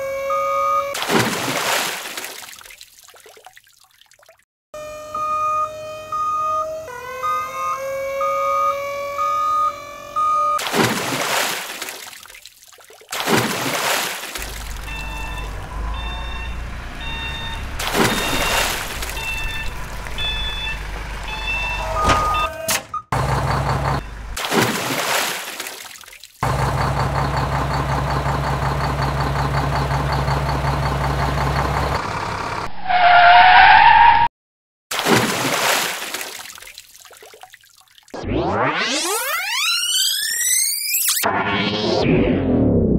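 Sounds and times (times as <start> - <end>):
engine-like drone: 14.4 - 24.4, 26.4 - 34.2
beeping electronic tune: 14.8 - 22.8, 38.2 - 42.2.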